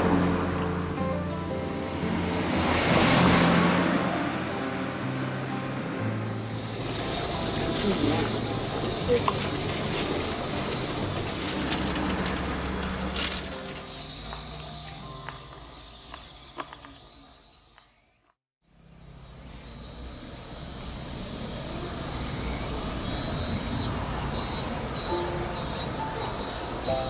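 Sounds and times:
insects high-pitched drone: 0:06.3 - 0:18.0, 0:18.7 - 0:27.0
insects pulsed chirps: 0:06.3 - 0:27.0.

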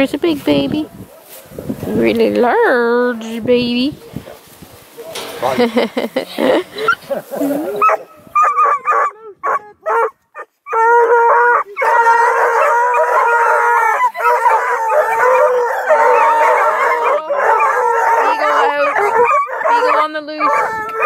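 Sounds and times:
dogs barking: 0:00.8 - 0:01.6, 0:06.4 - 0:21.0
hounds howling in chorus: 0:06.8 - 0:21.0.

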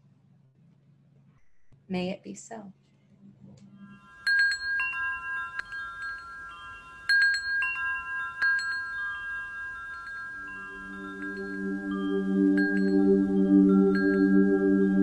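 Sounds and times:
low steady tone: 0:03.2 - 0:15.0
metal wind chimes ringing: 0:03.8 - 0:15.0.

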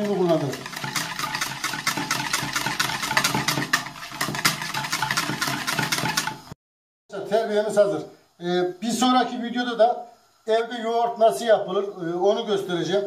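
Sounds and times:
whisk clicking against plastic bowl: 0:00.0 - 0:06.6.

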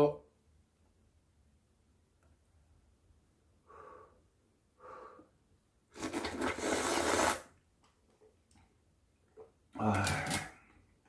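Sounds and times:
person slurping soup: 0:05.9 - 0:07.5.

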